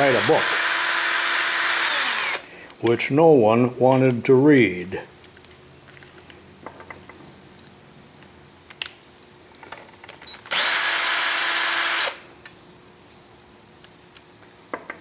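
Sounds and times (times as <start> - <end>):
cordless drill running: 0.0 - 2.4, 10.5 - 12.3.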